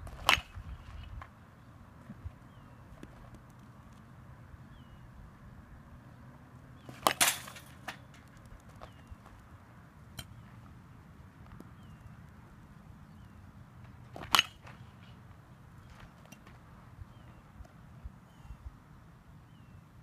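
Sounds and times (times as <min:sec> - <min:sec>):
bat striking ball: 0:06.8 - 0:08.2, 0:14.1 - 0:15.2.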